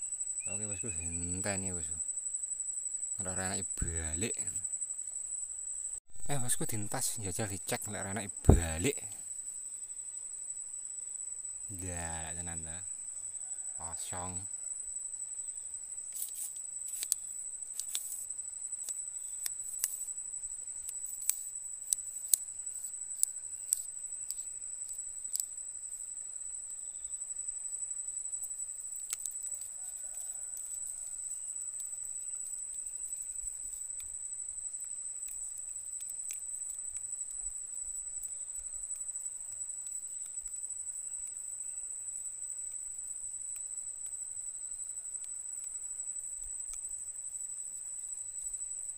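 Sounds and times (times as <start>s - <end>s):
insect buzzing: 0.0s - 48.9s
sharp clicks: 23.2s - 25.5s.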